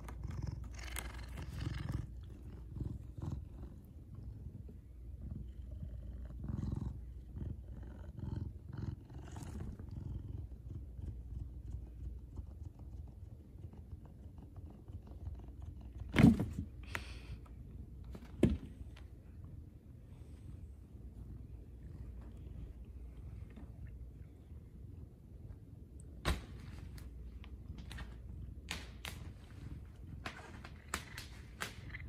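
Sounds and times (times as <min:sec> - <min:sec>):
cat purring: 0:00.0 - 0:16.2.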